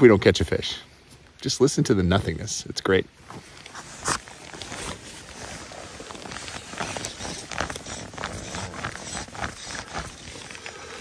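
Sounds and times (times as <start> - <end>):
jacket fabric rustling: 3.2 - 11.0.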